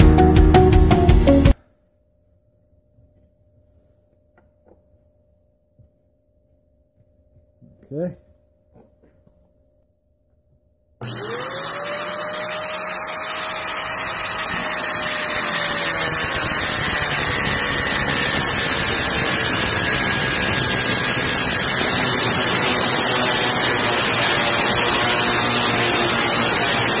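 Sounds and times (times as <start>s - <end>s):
angle grinder cutting metal pipe: 11.0s - 27.0s.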